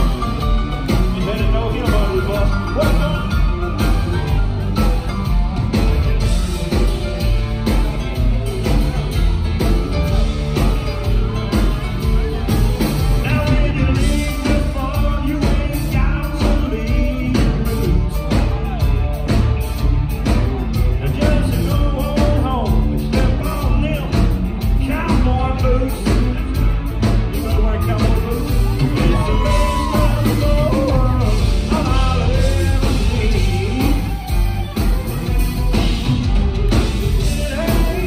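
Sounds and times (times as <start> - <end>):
country band playing live: 0.0 - 38.0
lead vocal singing: 13.2 - 18.8, 27.5 - 34.4, 37.1 - 38.0.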